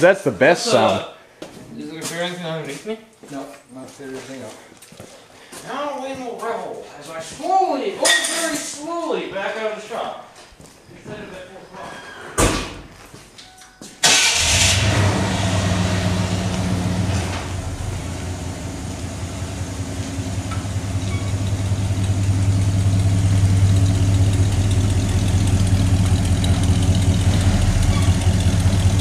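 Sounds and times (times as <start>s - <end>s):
engine starting and idling: 14.0s - 19.6s, 20.3s - 29.0s.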